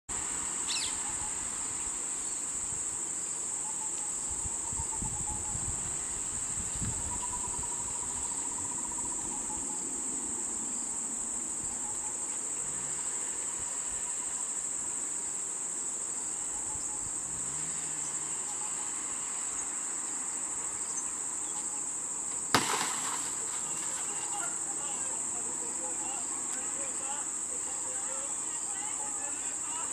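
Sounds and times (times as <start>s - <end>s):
high-pitched insect chorus: 0.1s - 29.9s.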